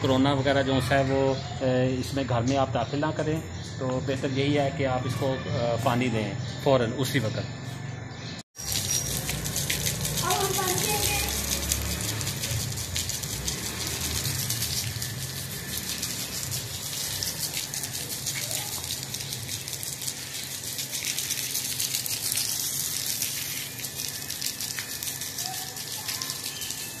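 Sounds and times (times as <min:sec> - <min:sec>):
garden hose spraying onto soil: 0:08.6 - 0:27.0.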